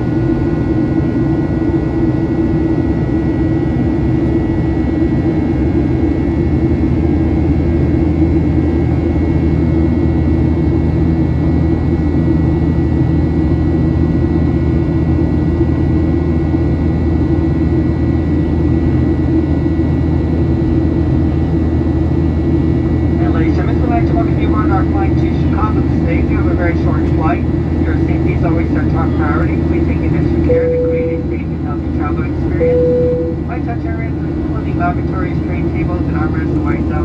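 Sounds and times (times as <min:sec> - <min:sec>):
jet engine drone: 0:00.0 - 0:37.0
thin steady whine: 0:22.1 - 0:37.0.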